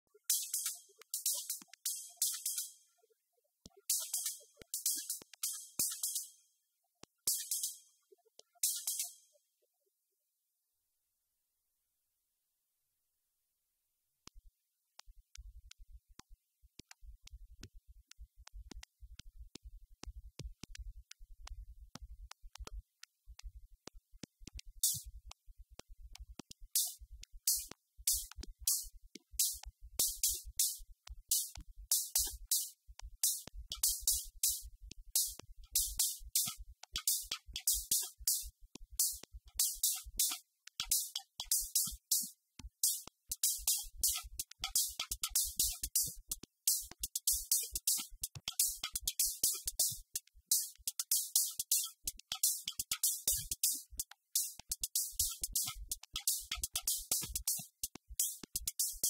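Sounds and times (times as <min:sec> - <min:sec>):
drum machine fast low beat: 0:00.1 - 0:02.7, 0:03.7 - 0:06.3, 0:15.0 - 0:59.0.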